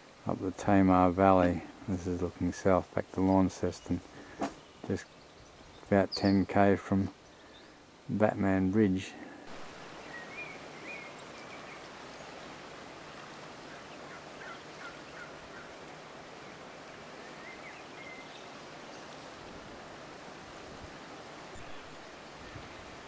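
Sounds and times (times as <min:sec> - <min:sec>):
faint outdoor hiss: 0:00.0 - 0:23.0
bird calls: 0:09.5 - 0:12.4, 0:13.6 - 0:19.4.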